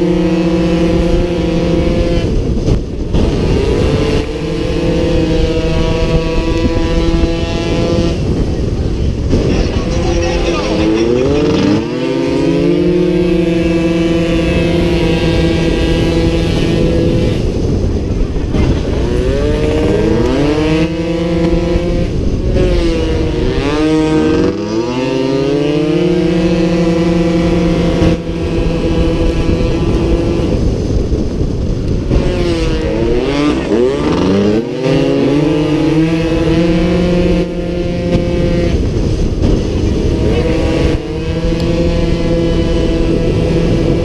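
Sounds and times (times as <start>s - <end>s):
scooter engines screaming: 8.2s - 16.0s.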